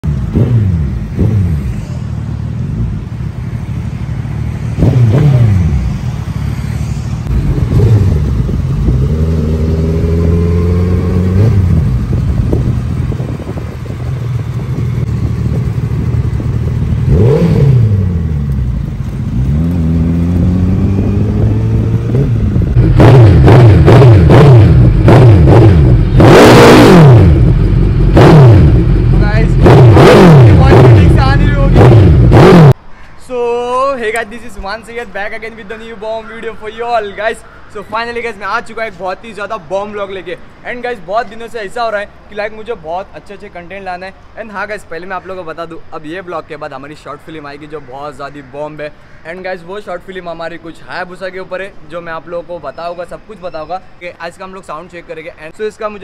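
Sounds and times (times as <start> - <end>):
loud throttle blips: 0.0 - 32.8
motorcycle engine revving: 0.0 - 32.8.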